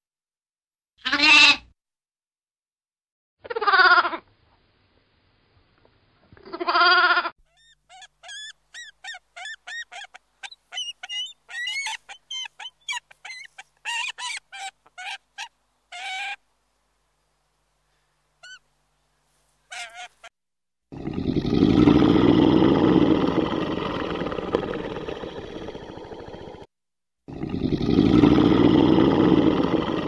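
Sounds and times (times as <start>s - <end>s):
eagle shrill chirping calls: 7.5s - 16.4s, 18.4s - 18.7s, 19.7s - 20.3s.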